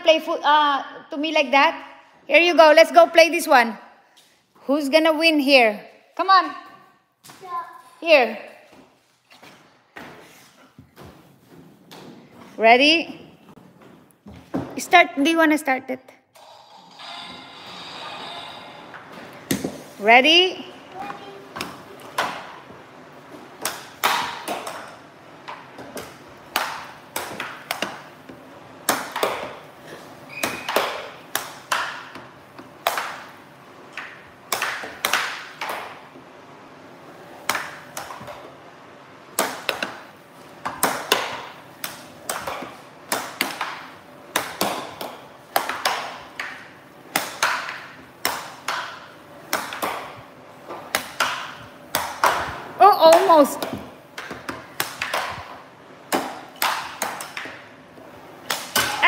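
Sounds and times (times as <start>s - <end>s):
air hockey puck clacking: 23.6s - 29.7s, 30.3s - 36.1s, 37.4s - 38.5s, 39.3s - 57.7s, 58.4s - 59.0s.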